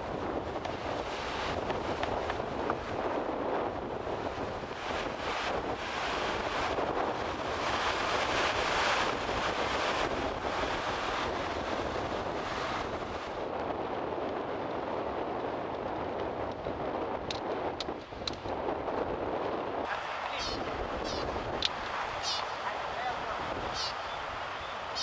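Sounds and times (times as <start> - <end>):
surf washing over boulders: 0.0 - 25.0
wind buffeting microphone: 0.0 - 25.0.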